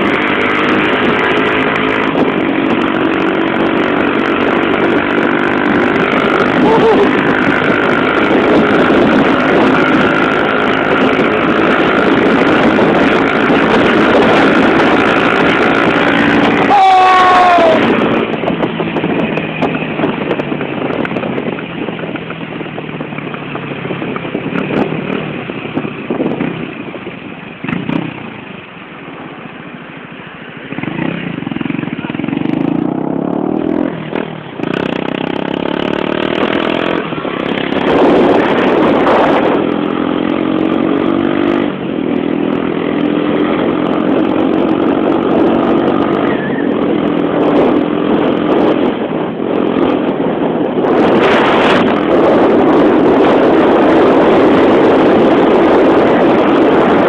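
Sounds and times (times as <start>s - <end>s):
motorcycle engine: 0.0s - 57.0s
wind noise on microphone: 0.0s - 57.0s.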